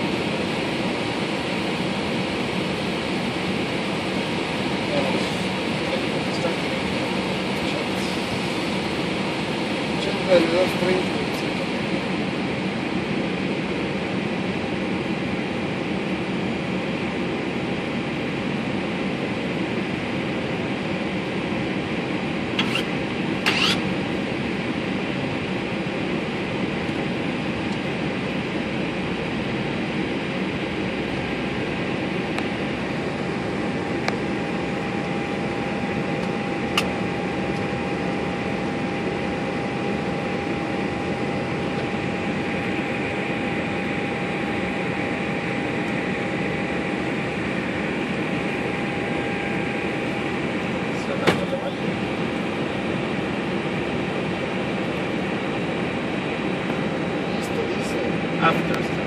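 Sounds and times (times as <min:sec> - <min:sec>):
cockpit ventilation airflow: 0:00.0 - 0:59.0.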